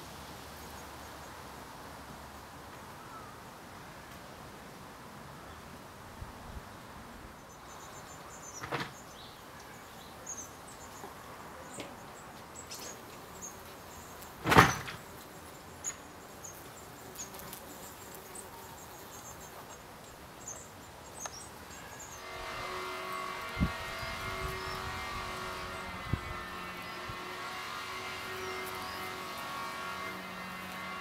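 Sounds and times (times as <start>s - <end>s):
steady low hiss: 0.0s - 31.0s.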